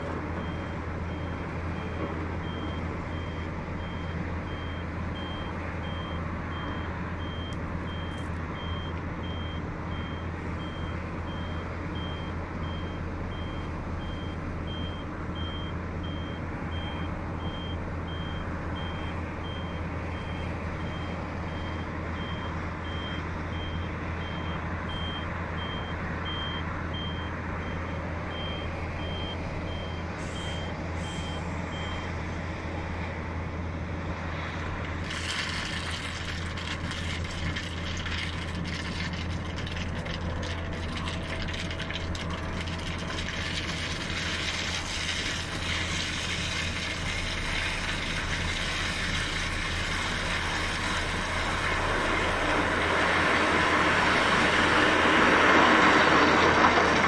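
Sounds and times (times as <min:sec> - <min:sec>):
diesel machinery droning: 0:00.0 - 0:57.0
reversing alarm beeping: 0:00.4 - 0:32.1.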